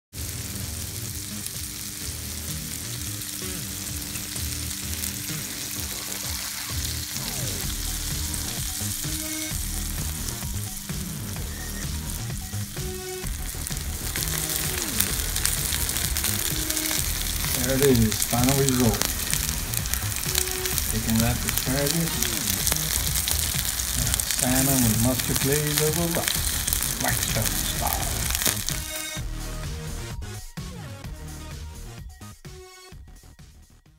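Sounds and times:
food sizzling on griddle: 0.1s - 30.1s.

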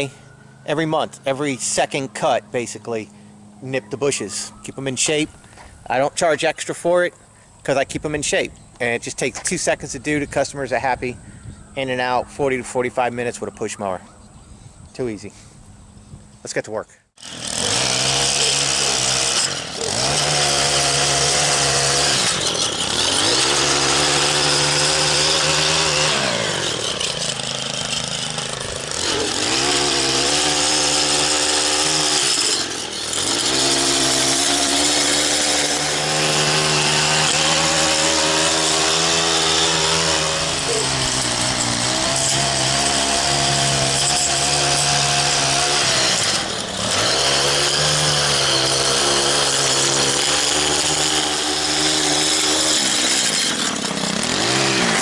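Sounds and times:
two-stroke edger engine revving: 17.2s - 55.0s.

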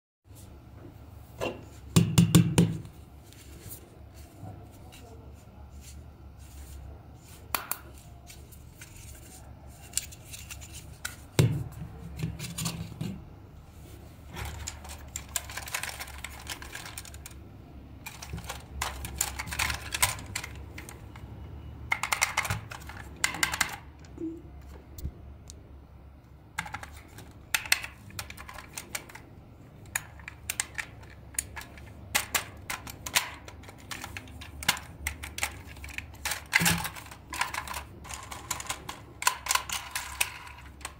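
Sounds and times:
plastic toys clicking and knocking: 14.4s - 24.2s, 26.5s - 40.9s.

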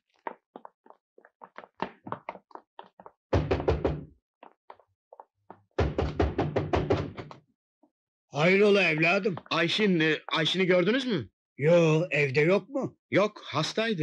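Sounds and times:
fist pounding on wooden door: 3.4s - 4.1s, 5.8s - 7.3s.

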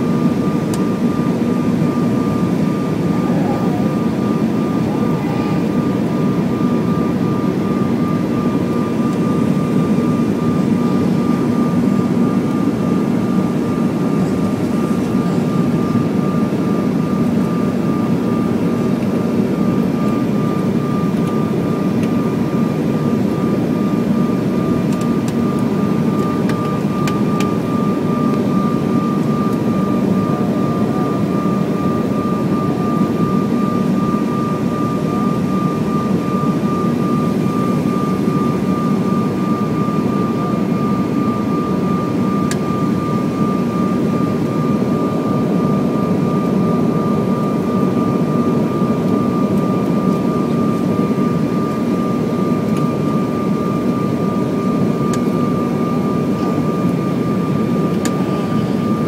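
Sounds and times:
thin whine: 0.0s - 15.6s
jet cabin airflow rumble: 0.0s - 59.0s.

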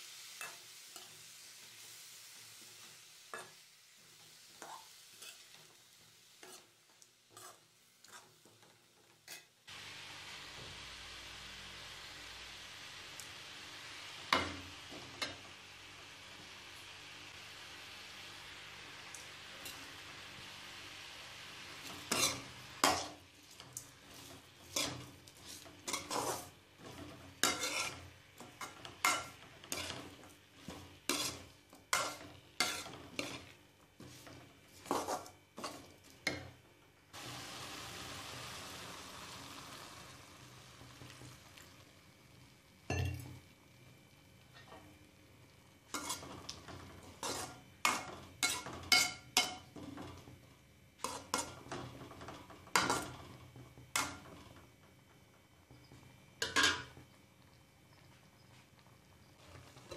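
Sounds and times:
steady hiss: 0.0s - 8.4s, 9.4s - 36.0s, 36.9s - 51.7s
faint sizzle: 0.0s - 59.9s
metal spatula scraping pan: 4.6s - 5.7s, 6.4s - 6.7s, 7.3s - 8.7s, 21.8s - 35.9s, 45.9s - 49.7s, 51.0s - 53.1s.

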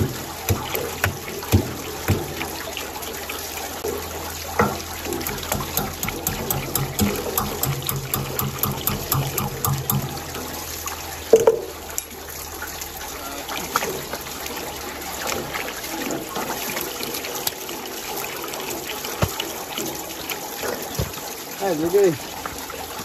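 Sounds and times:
water running and trickling: 0.0s - 23.0s
loud knock: 4.6s - 10.3s.

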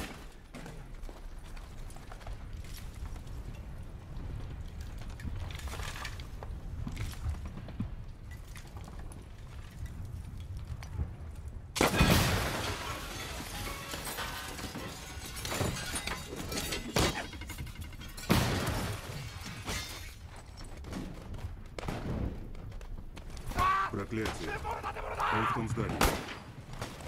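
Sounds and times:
crashing and shattering debris: 0.0s - 27.0s
film score: 10.9s - 27.0s
explosion: 11.8s - 15.8s.

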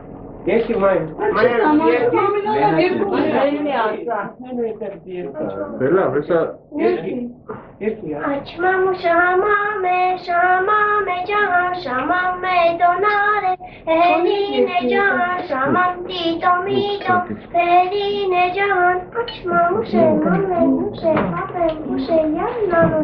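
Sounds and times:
girl singing: 8.2s - 23.0s.

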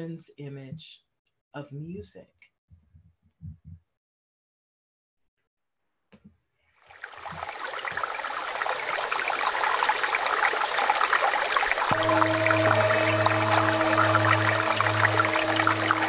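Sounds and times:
stream water flowing: 6.8s - 16.0s
meditative music tones: 11.9s - 16.0s.

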